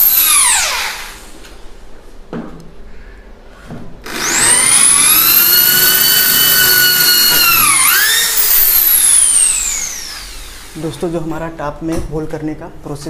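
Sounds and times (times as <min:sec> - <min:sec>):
cordless drill whining: 0:00.0 - 0:01.3, 0:04.0 - 0:10.8.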